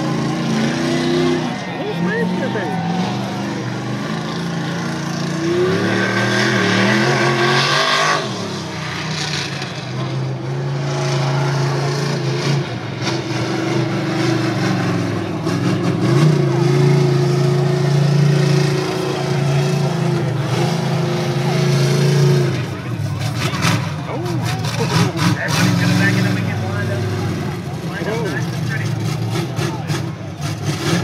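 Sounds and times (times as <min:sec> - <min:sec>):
truck engine revving: 0:00.0 - 0:31.0.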